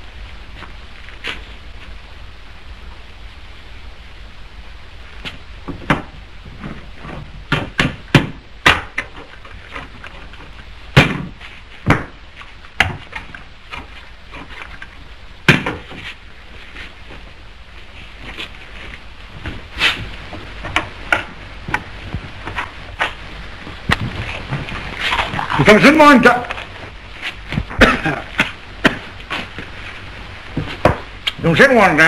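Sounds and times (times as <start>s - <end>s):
film soundtrack hiss: 0.0s - 32.0s.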